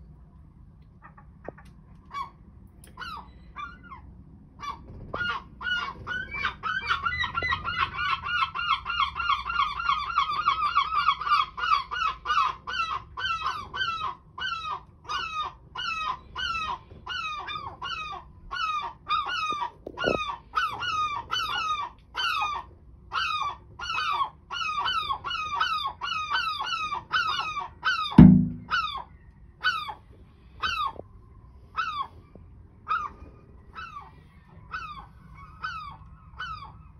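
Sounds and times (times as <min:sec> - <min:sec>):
loud sharp knock: 0:28.2 - 0:28.8.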